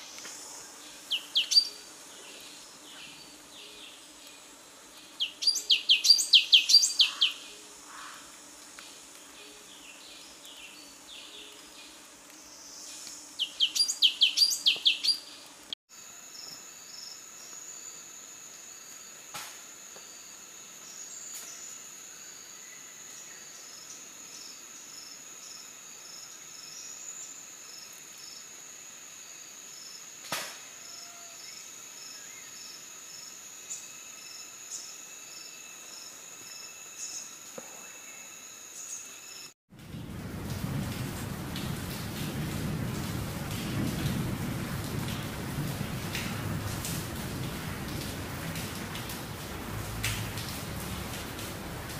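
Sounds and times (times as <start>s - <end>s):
insect drone: 0.0s - 51.9s
bird chirping: 1.0s - 1.8s, 5.2s - 7.4s, 13.4s - 15.3s.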